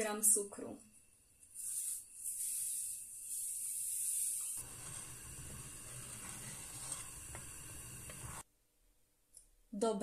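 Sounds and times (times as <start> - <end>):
sugar pouring hiss: 1.5 - 8.4
wooden spoon stirring in pot: 3.8 - 8.4.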